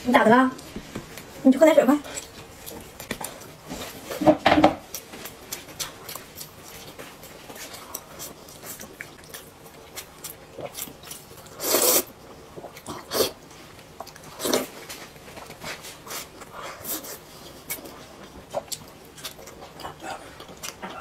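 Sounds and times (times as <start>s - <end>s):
slurping food: 11.6s - 12.1s.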